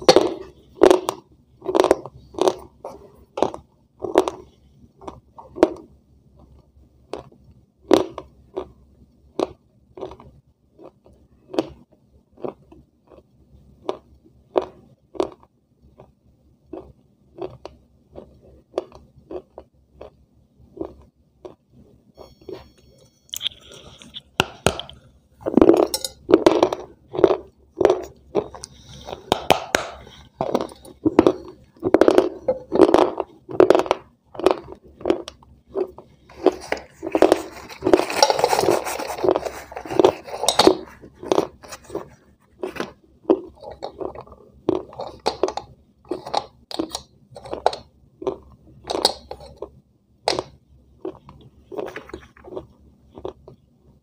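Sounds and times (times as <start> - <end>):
crunchy bites and chewing: 0.0 - 5.9, 7.1 - 53.7
paper wrapper rustling: 36.4 - 41.0.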